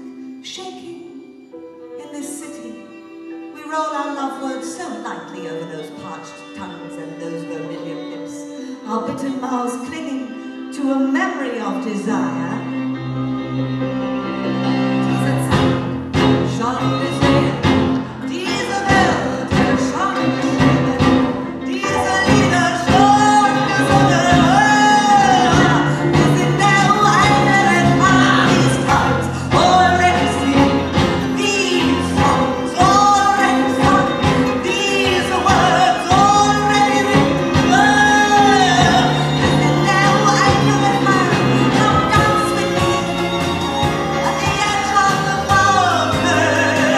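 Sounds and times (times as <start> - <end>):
live band playing: 0.0 - 46.9
woman singing: 16.4 - 43.1, 43.8 - 46.9.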